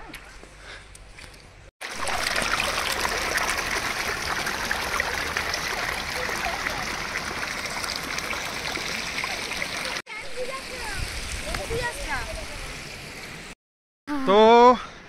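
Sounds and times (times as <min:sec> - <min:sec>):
stream running over rocks: 0:01.8 - 0:13.6.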